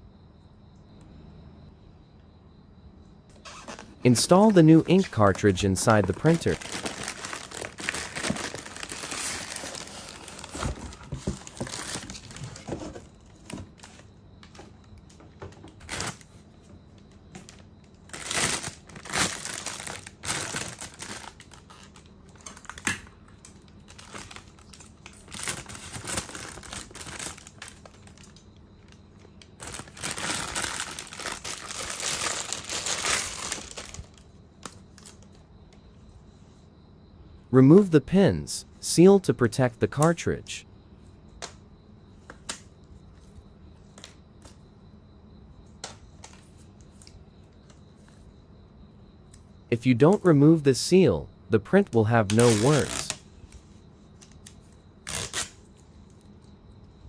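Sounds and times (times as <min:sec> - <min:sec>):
plastic bag crinkling: 0:03.6 - 0:12.7, 0:18.0 - 0:22.8, 0:23.9 - 0:29.0, 0:29.6 - 0:34.2.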